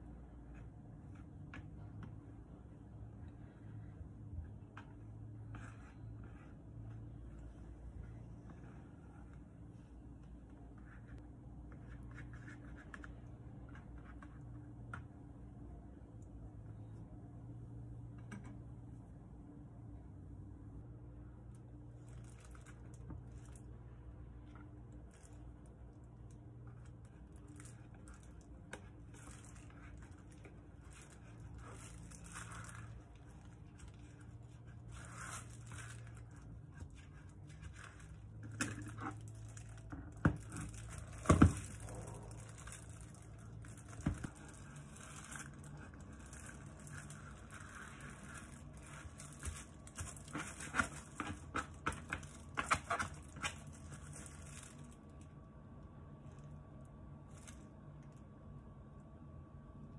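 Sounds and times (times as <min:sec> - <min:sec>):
plastic gloves crinkling: 0:21.5 - 0:55.3, 0:57.2 - 0:57.8.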